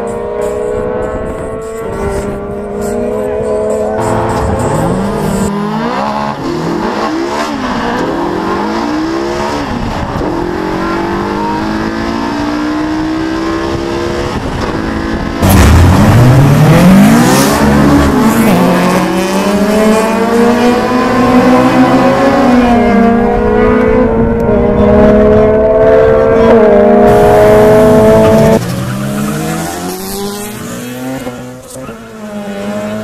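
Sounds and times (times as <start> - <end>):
car engine accelerating: 0.0 - 33.0.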